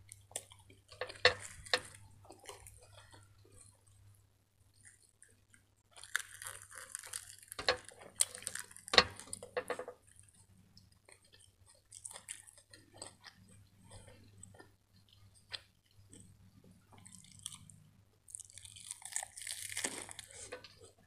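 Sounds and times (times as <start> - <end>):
lettuce crackling: 5.9 - 9.8, 17.0 - 21.0.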